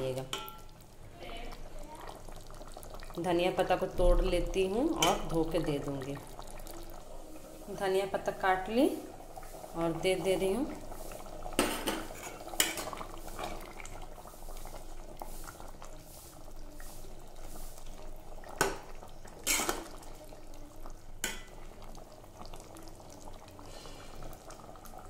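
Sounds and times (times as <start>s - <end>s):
spoon scraping a pan: 11.6s - 13.7s, 19.4s - 20.0s.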